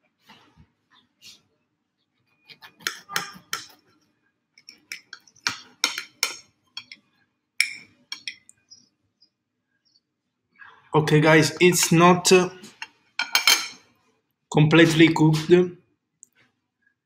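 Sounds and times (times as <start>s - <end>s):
knife clinking on glass plate: 4.6s - 7.0s, 7.6s - 8.5s, 12.8s - 13.9s.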